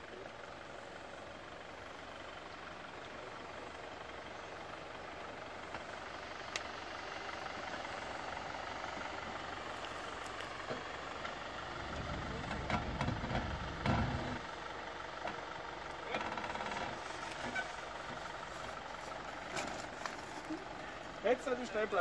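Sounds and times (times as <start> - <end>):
car engine running low: 0.0 - 22.0
tyres cracking over branches: 15.9 - 20.8.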